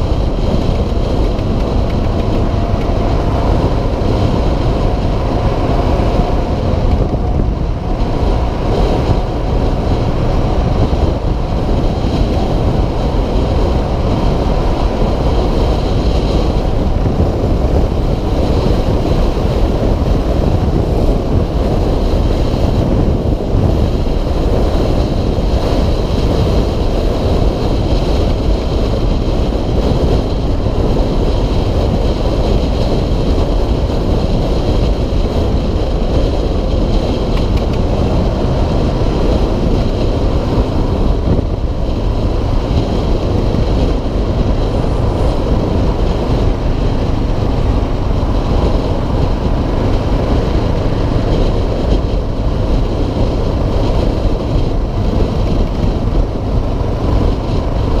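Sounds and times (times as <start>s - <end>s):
motorcycle engine cruising: 0.0s - 58.0s
wind rushing on microphone: 0.0s - 58.0s.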